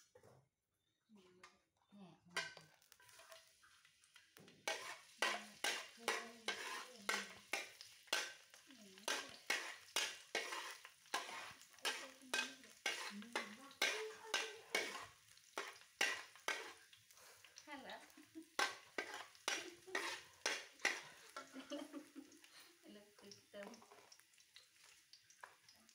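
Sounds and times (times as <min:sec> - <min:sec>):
metal spatula scraping a wok: 0:02.4 - 0:03.8, 0:04.5 - 0:17.5, 0:18.6 - 0:21.6
food sizzling in a pan: 0:02.4 - 0:25.9.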